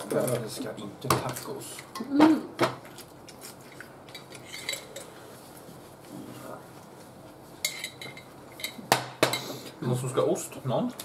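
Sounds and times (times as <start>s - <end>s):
cutlery clinking on plates: 7.7s - 9.4s.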